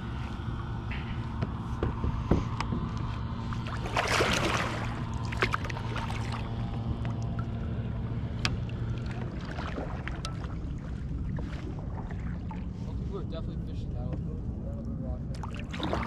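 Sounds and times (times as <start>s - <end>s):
paddle splashing into water: 3.6s - 6.4s.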